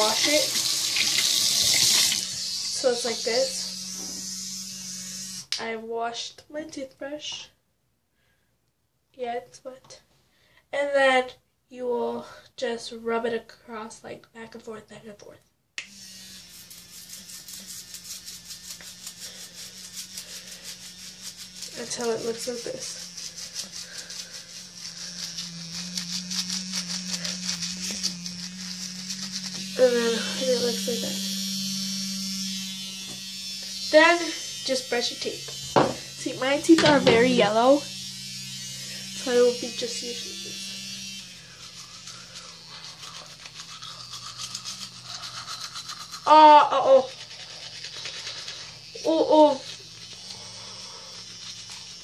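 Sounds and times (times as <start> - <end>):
bristles scratching soap: 0.0 - 5.4, 15.9 - 52.0
electric toothbrush humming: 0.0 - 5.6, 15.8 - 52.0.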